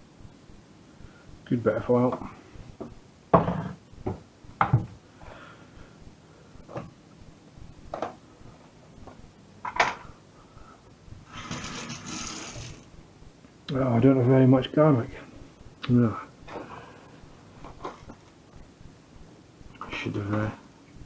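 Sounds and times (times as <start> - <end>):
cupboard door and containers knocking: 3.3 - 5.0.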